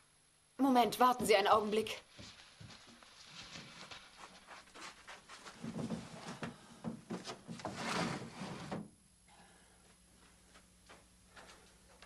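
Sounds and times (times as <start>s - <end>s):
wood sliding against wood: 7.2s - 8.8s.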